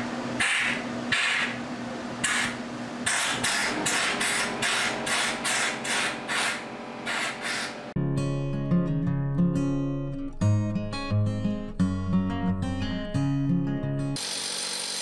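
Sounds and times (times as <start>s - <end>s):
compressed air nozzle hissing: 2.2s - 7.8s.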